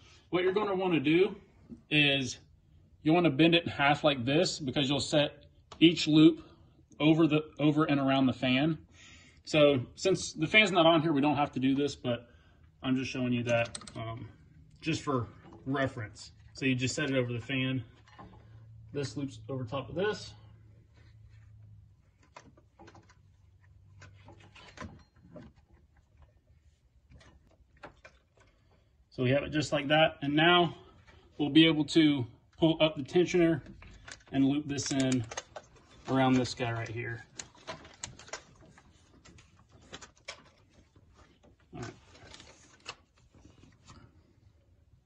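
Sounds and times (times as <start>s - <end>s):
rubber belt rustling and knocking: 20.6s - 29.0s, 33.6s - 44.6s.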